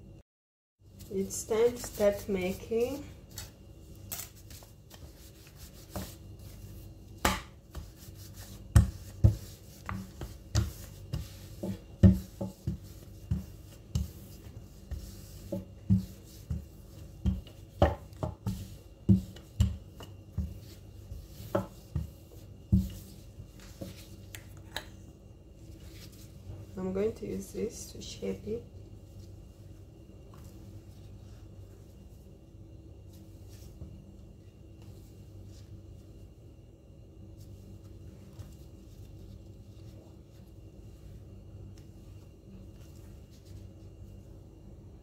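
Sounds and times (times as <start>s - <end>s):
rolling pin knocking on countertop: 8.7s - 14.2s, 15.5s - 20.6s.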